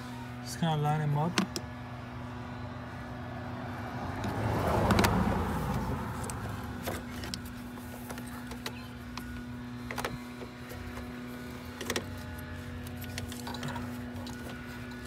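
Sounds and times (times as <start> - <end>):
vehicle passing: 1.7 - 7.6.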